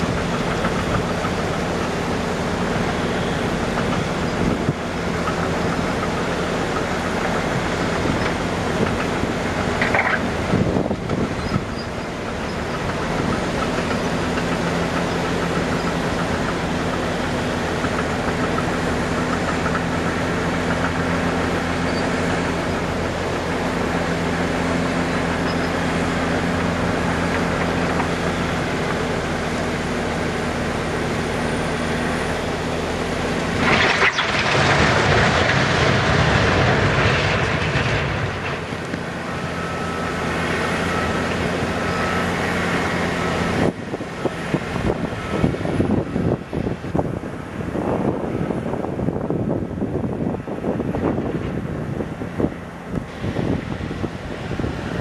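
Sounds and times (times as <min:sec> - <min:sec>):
diesel truck engine running: 0:00.0 - 0:55.0
boulders crashing onto ground: 0:33.6 - 0:38.7.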